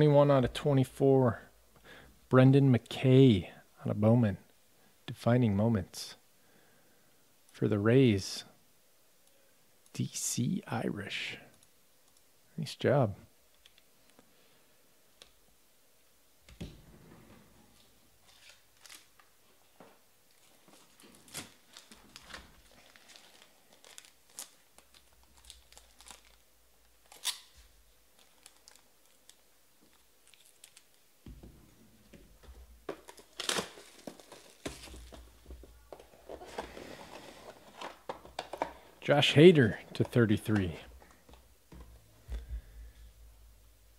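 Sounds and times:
quiet clicks and crinkles: 11.4s - 12.3s, 13.5s - 14.3s, 17.8s - 31.3s.

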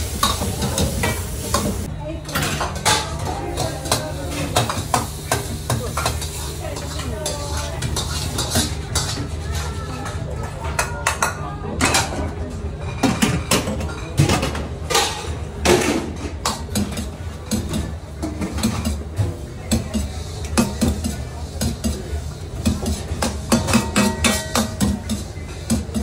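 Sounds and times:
metal ladle clanking against wok: 2.3s - 12.2s, 19.6s - 26.0s.

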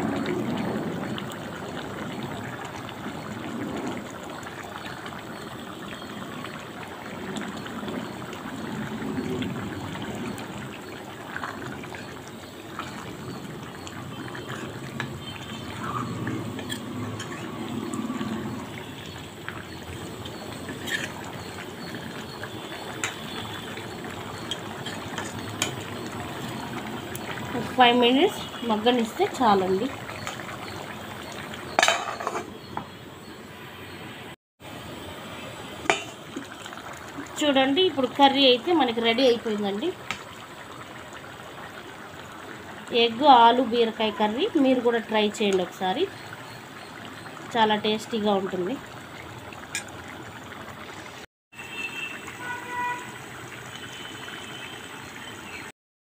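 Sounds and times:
curry simmering hiss: 0.0s - 34.0s, 34.6s - 55.7s
steel lid clinking on pot rim: 31.8s - 32.5s.

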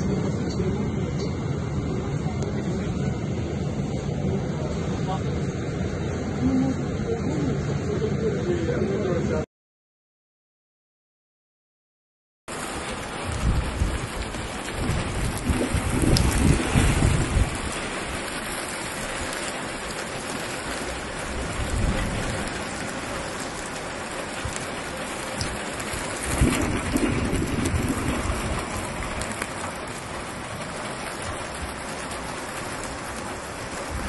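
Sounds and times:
heavy rain pouring: 12.5s - 34.0s
low rumbles: 12.5s - 34.0s.

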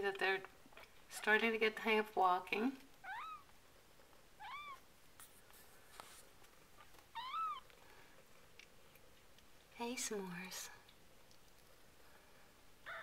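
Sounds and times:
kittens mewing: 7.2s - 7.7s.

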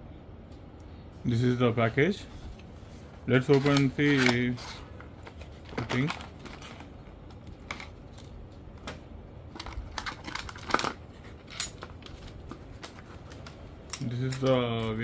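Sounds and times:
plastic bag crinkling: 3.3s - 8.4s.

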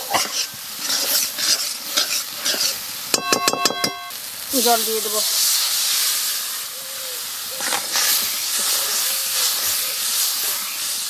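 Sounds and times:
water sizzling in hot oil: 0.0s - 11.0s.

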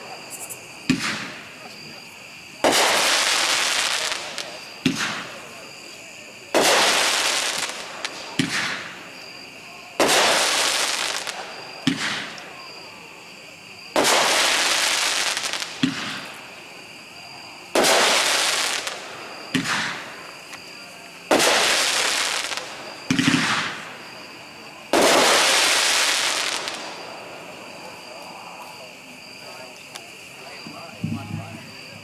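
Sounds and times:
firework bursts overhead: 0.0s - 32.0s
firework launch thumps: 0.8s - 1.4s, 4.8s - 5.3s, 6.6s - 8.9s, 11.8s - 12.4s, 15.7s - 16.4s, 17.8s - 20.1s, 23.0s - 23.8s, 30.7s - 31.7s.

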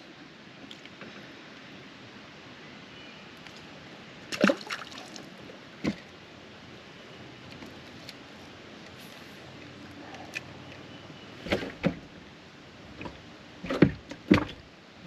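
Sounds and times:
water sloshing against boat: 4.3s - 6.2s.

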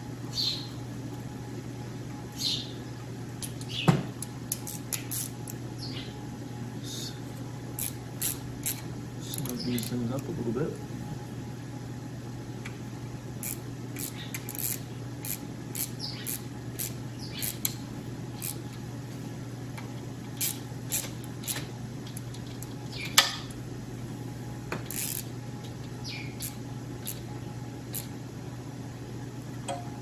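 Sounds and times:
steady low hum: 0.0s - 30.0s
ratchet clicking on metal: 4.5s - 5.6s, 7.8s - 10.0s, 13.4s - 17.8s, 18.4s - 18.6s, 20.4s - 22.6s, 24.8s - 25.3s, 26.4s - 27.3s, 27.9s - 28.1s.

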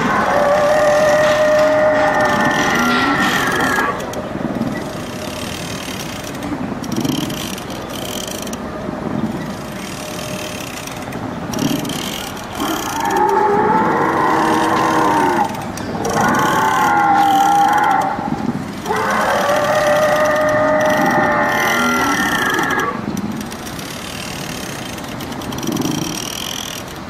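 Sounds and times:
recorded dinosaur roar: 0.0s - 4.0s, 12.6s - 23.0s
electric drive mechanism running: 0.0s - 27.0s.

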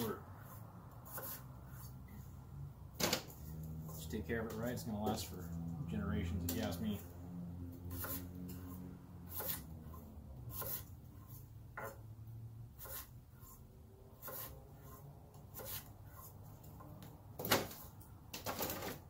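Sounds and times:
knife chopping on wooden board: 1.1s - 1.4s, 8.0s - 8.2s, 9.3s - 9.6s, 10.5s - 12.0s, 14.2s - 14.5s, 15.5s - 16.3s.

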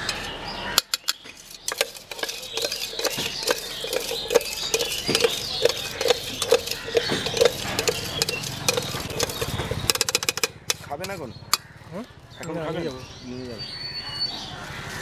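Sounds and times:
food knocking in metal tin: 0.8s - 11.6s
small clatters: 0.8s - 11.7s.

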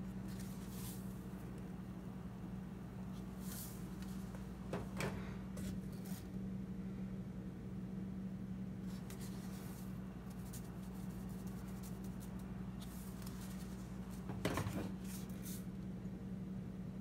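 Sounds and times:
steady low hum: 0.0s - 17.0s
spice shaker soft hissing shakes: 0.3s - 1.2s, 3.4s - 4.1s, 8.8s - 14.1s.

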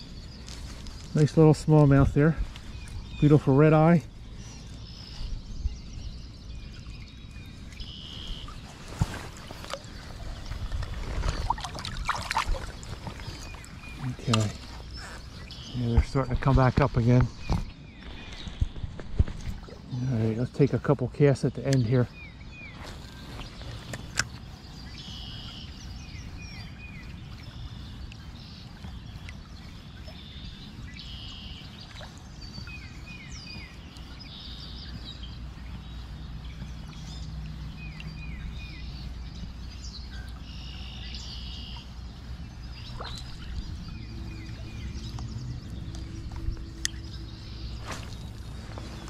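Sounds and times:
songbirds singing: 0.0s - 49.0s
low outdoor rush: 42.0s - 49.0s.

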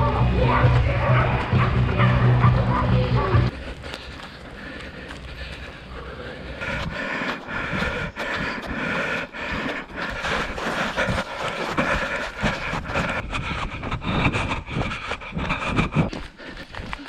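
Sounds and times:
person breathing hard: 3.5s - 17.0s
footsteps crunching in snow: 6.6s - 13.3s.

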